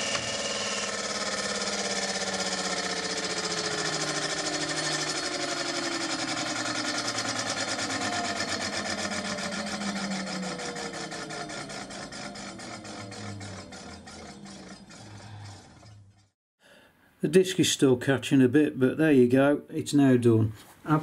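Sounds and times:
faint motor whine: 0.0 - 16.4
scooter wheel spinning with rubbing pulse: 0.0 - 16.4.

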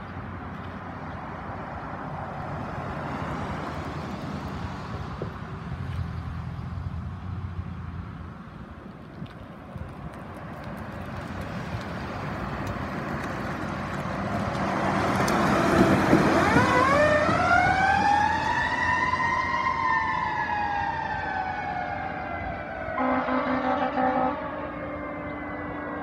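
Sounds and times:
fire engine passing: 0.0 - 26.0
siren rising and falling: 15.6 - 26.0
air horn blast: 22.9 - 25.9.

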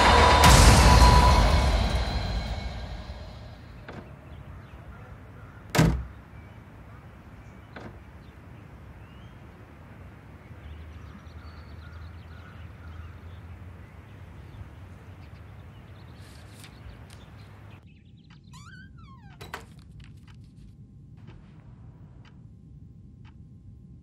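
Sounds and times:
low rumble and hiss: 0.0 - 18.1
faint bird chirps: 3.4 - 19.5.

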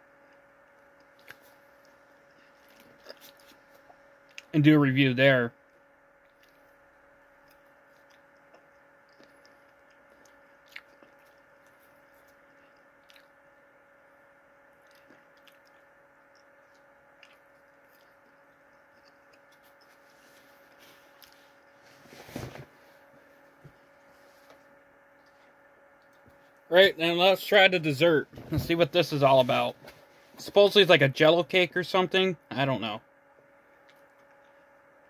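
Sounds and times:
person chewing food: 0.0 - 4.5, 5.6 - 22.0
faint hum: 0.0 - 35.0.

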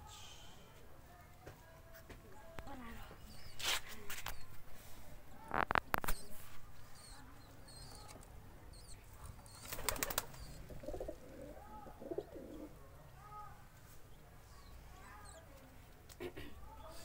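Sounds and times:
pigeons cooing: 8.8 - 12.8
pigeons clattering on concrete: 9.2 - 11.3
wings flapping: 9.6 - 11.3.

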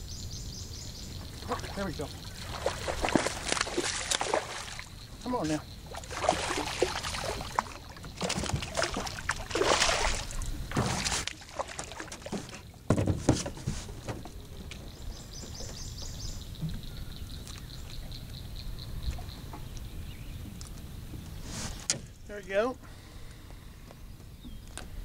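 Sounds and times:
water sloshing: 1.2 - 18.0
fish splashing in water: 1.5 - 5.0, 5.8 - 12.7.

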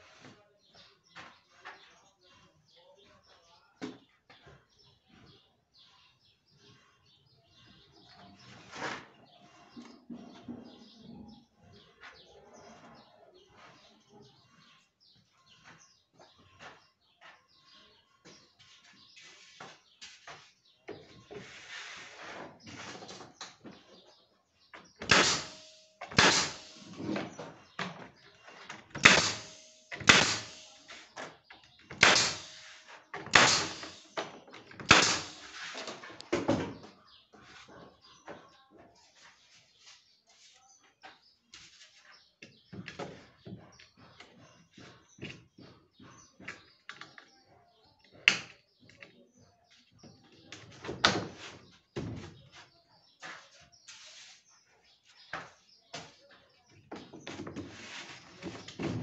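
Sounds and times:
pneumatic nailer firing: 25.0 - 27.3, 29.0 - 31.0, 31.9 - 36.0
wood scraping: 57.0 - 59.0.

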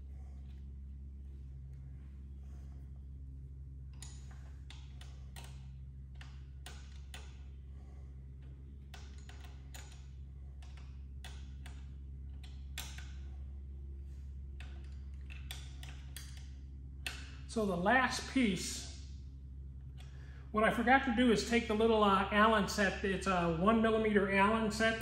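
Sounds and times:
steady low hum: 0.0 - 25.0
light metal clicks and taps: 3.9 - 7.5, 8.4 - 13.3, 14.6 - 17.4.

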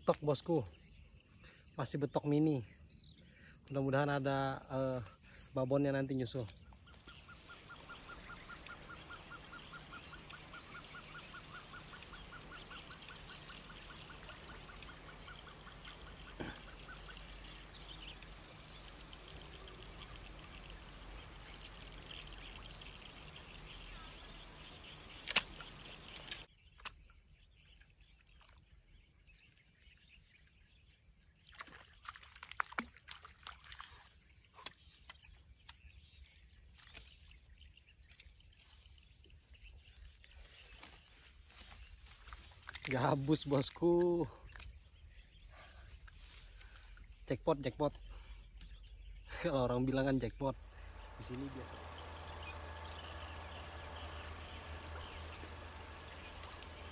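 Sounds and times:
insects chirring: 0.1 - 26.5, 38.6 - 56.9
rhythmic insect chirps: 6.7 - 26.5, 45.4 - 56.9.

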